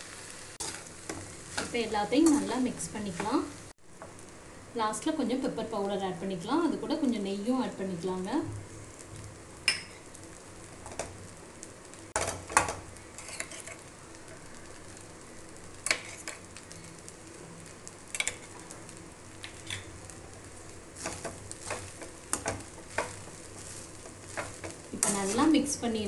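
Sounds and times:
food sizzling in a pan: 0.0s - 26.0s
metal spatula scraping a pan: 13.1s - 13.9s.

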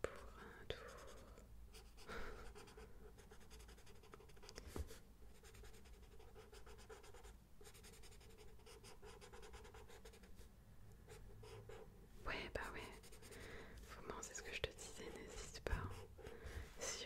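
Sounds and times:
pencil scratching on paper: 0.9s - 10.4s, 11.1s - 13.4s, 14.7s - 16.3s.

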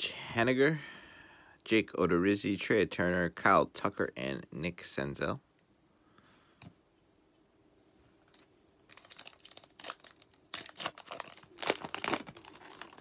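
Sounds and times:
foil wrapper tearing and crinkling: 8.8s - 13.0s.

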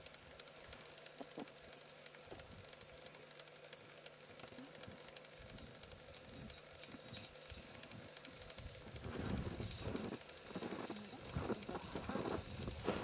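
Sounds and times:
faint hiss and hum: 0.0s - 13.0s.

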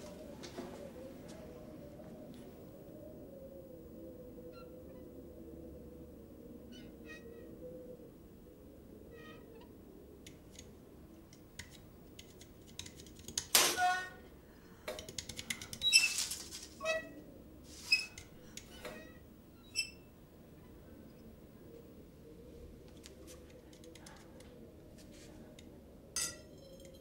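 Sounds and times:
light scratchy clicks: 22.8s - 25.7s.

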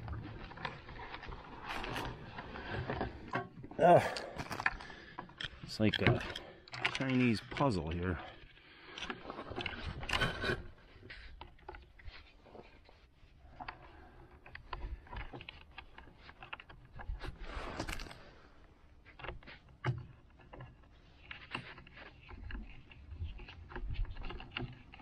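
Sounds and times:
rustling plastic scrape: 0.0s - 3.6s, 6.7s - 19.6s.

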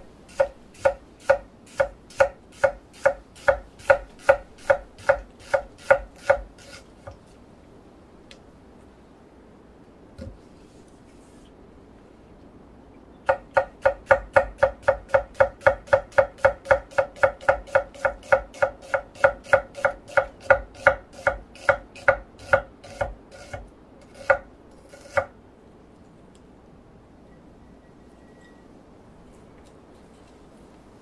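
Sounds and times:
knife chopping on wooden board: 0.3s - 7.2s, 13.3s - 25.3s.

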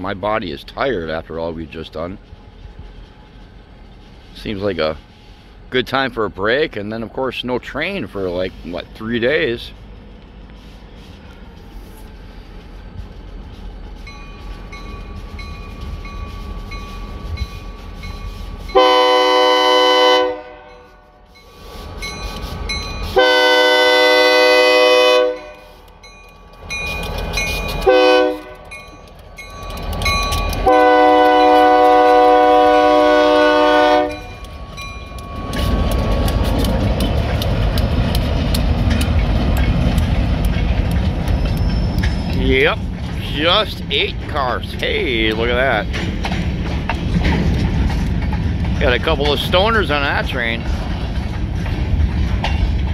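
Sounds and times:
locomotive engine noise: 0.0s - 52.9s
low rumble of train: 0.0s - 52.9s
train wheels on rails: 0.0s - 52.9s
locomotive air horn blasts: 18.6s - 21.4s, 23.0s - 25.8s, 27.8s - 28.8s, 30.6s - 34.4s.

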